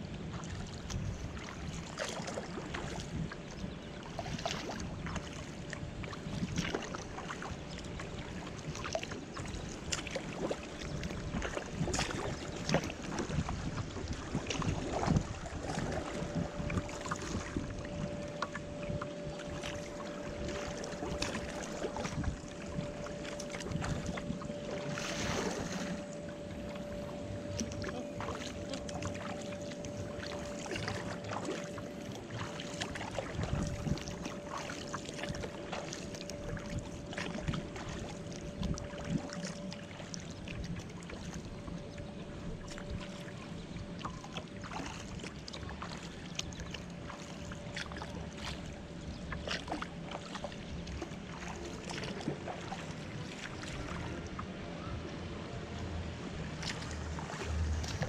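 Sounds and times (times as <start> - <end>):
steady hum: 0.0 - 58.0
water splashing against kayak hull: 0.0 - 58.0
water drips: 14.4 - 42.0.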